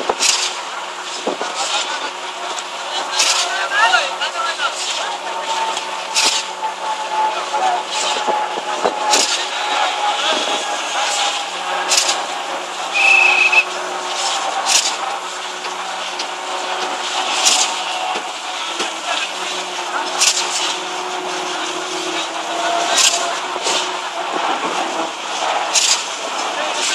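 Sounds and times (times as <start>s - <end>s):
concrete pump hissing surge: 0.0s - 26.9s
pump engine hum: 0.0s - 26.9s
high whistle-like tone: 12.9s - 13.7s.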